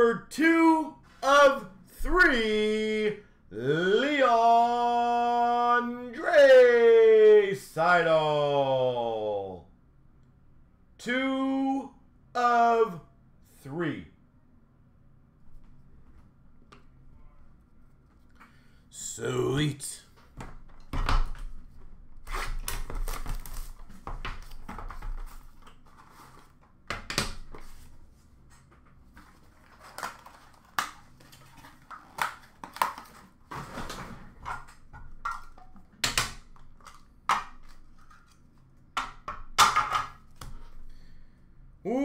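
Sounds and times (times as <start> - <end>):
cards rustling: 27.5 - 33.6.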